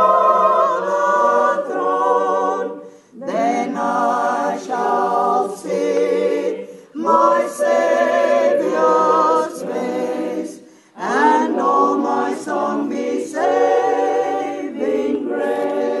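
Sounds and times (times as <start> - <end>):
choir singing in harmony: 0.0 - 16.0.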